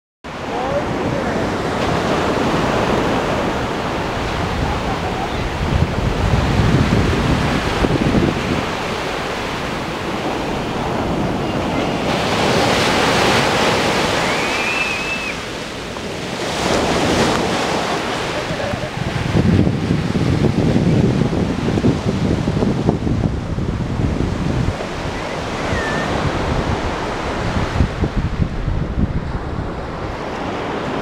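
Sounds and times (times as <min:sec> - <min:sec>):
surf breaking on beach: 0:00.3 - 0:31.0
wind buffeting microphone: 0:00.5 - 0:31.0.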